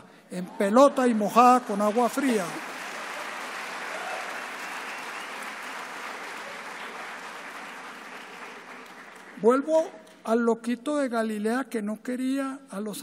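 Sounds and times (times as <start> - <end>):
audience applauding: 0.6 - 9.4.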